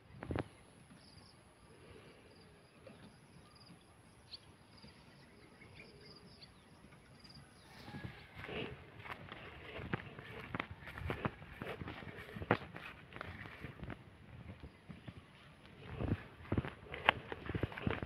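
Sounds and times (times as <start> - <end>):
footsteps through grass: 7.6 - 18.0.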